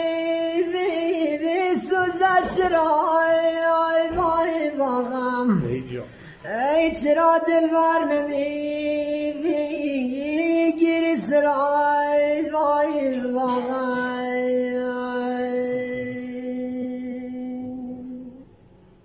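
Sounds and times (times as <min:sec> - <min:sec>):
man singing unaccompanied: 0:00.0 - 0:18.5.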